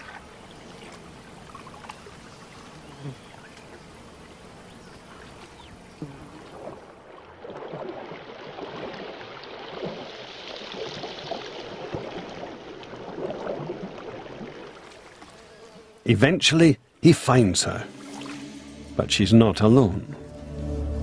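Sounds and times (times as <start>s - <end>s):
faint water trickle: 0.0s - 15.6s.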